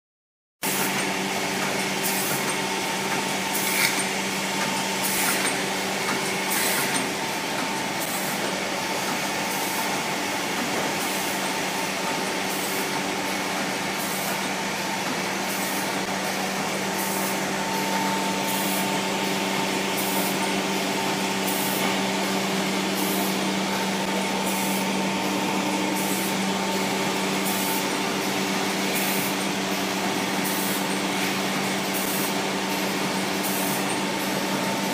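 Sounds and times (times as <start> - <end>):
packing machine humming: 0.6 - 34.9.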